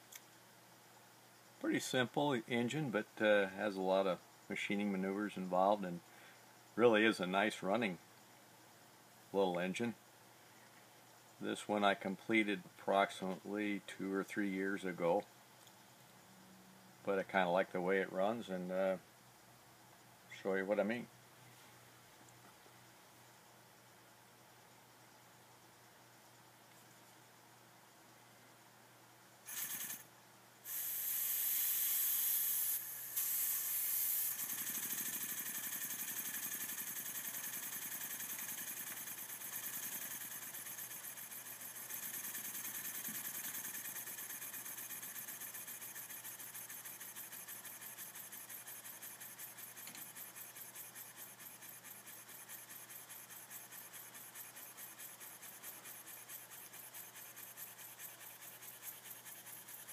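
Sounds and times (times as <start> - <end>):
steam hiss: 30.6 - 36.6.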